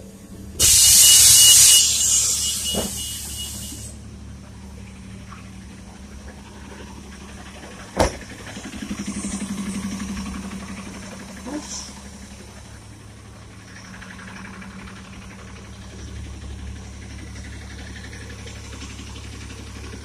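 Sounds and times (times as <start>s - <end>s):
bus engine idling: 0.0s - 20.0s
bus air brake hiss: 0.6s - 4.0s.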